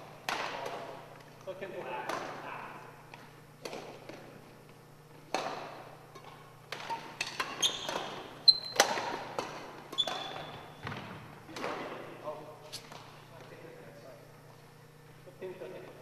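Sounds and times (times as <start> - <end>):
racket striking shuttlecock: 0.2 - 1.0, 3.6 - 4.2, 5.2 - 12.0
trainers squeaking on wooden floor: 7.5 - 9.0, 9.9 - 10.8.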